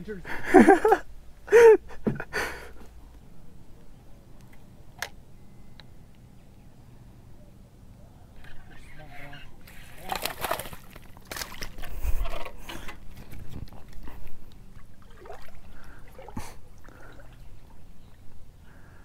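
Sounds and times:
fish splashing in water: 9.8s - 13.2s, 14.7s - 17.8s.

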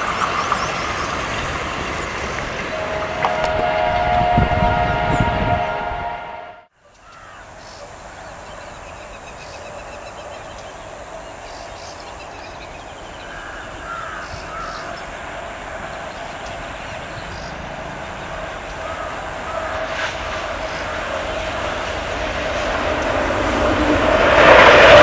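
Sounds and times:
diesel locomotive droning: 0.0s - 25.0s
birds calling: 6.8s - 21.9s.

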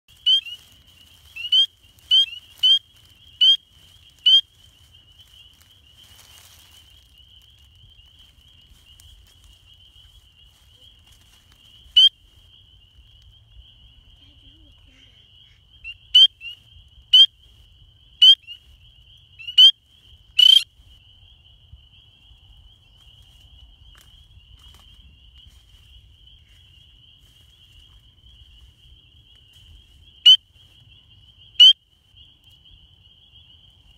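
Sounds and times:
frog giving rising peeps: 0.1s - 4.6s, 19.4s - 19.8s, 20.4s - 20.6s
distant frog chorus: 0.1s - 33.9s.

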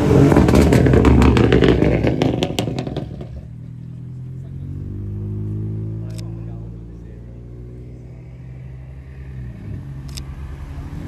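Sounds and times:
car engine revving loudly: 0.0s - 3.4s, 4.3s - 11.0s
exhaust crackles and pops: 0.0s - 3.5s
engine running low note: 0.0s - 11.0s.

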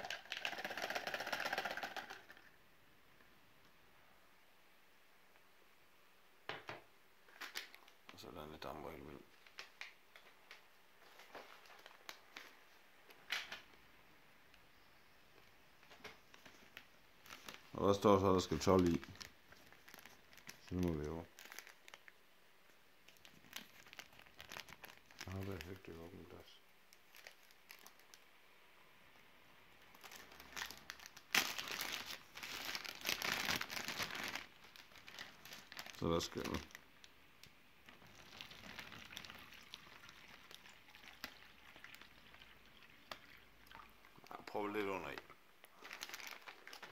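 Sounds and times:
plastic bag crinkling: 0.0s - 2.5s, 11.1s - 12.6s, 16.4s - 22.2s, 23.1s - 26.0s, 26.9s - 28.2s, 29.9s - 37.1s, 37.8s - 43.4s, 44.4s - 46.9s.

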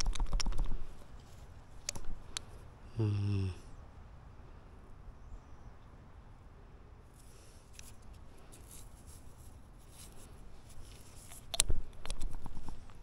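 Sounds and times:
hands scraping through soil: 7.2s - 11.5s.

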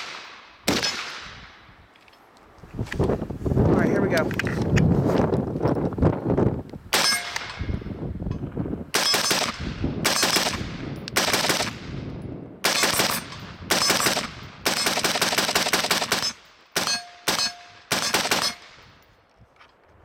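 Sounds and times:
rifle gunshots with echo: 0.0s - 1.7s, 6.9s - 7.7s, 8.9s - 18.8s.

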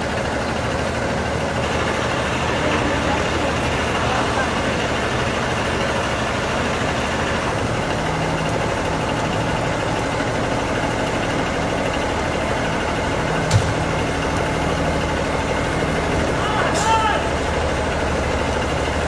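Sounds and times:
truck engine idling: 0.0s - 19.0s
sharp knock: 13.5s - 13.9s.

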